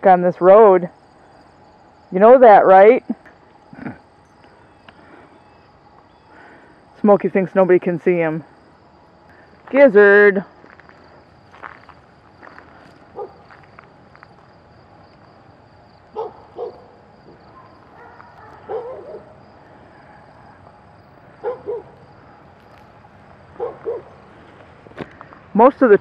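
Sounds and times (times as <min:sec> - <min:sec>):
faint high whine: 0:00.0 - 0:26.0
dog barking: 0:13.2 - 0:13.5, 0:16.1 - 0:19.4, 0:21.4 - 0:22.0, 0:23.6 - 0:24.1.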